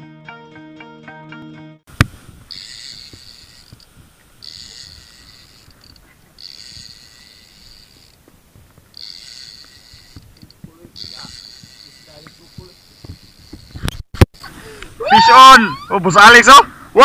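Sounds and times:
wind and water rumble: 1.9 - 15.1
fishing reel whirring: 2.2 - 8.3, 8.9 - 14.0.

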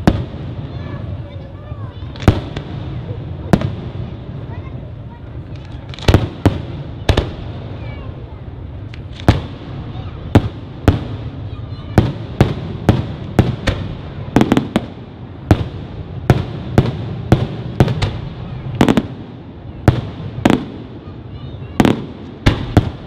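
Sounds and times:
continuous low rumble: 0.0 - 23.0
fireworks bursting with sharp bangs: 0.0 - 23.0.

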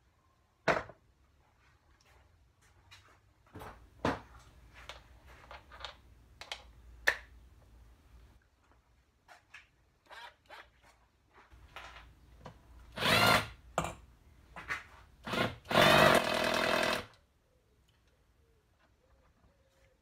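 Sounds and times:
impact driver bursts: 12.9 - 13.6, 15.2 - 17.1.

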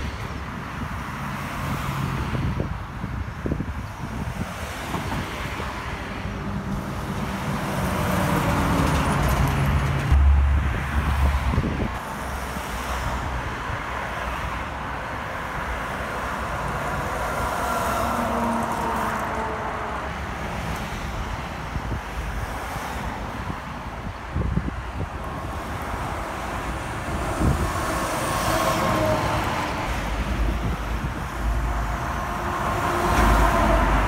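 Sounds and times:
highway traffic: 0.0 - 34.0
truck diesel engine passing: 6.5 - 12.4, 26.2 - 34.0.

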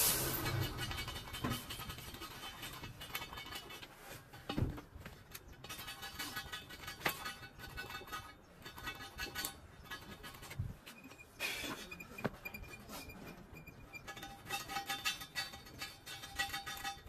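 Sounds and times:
metallic clinks on wheel rim: 13.6 - 17.0.

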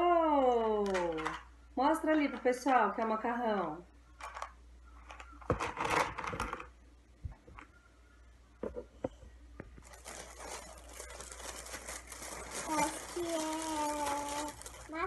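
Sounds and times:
bag crinkling and rustling: 9.8 - 15.0.

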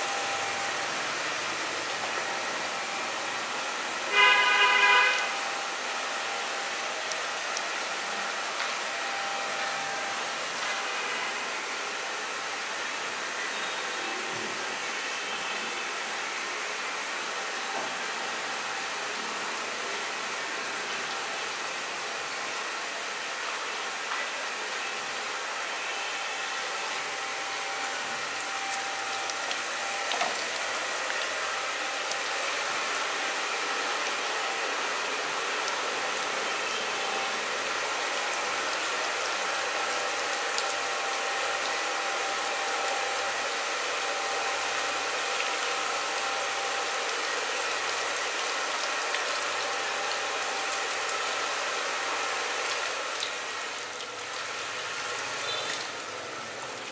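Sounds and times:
shower sprayer water hissing: 0.0 - 56.9.

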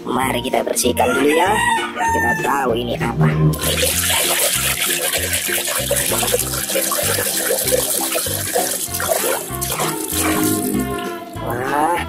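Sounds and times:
background music with bass line: 0.0 - 12.0
water splashing in a basin: 3.5 - 11.0.

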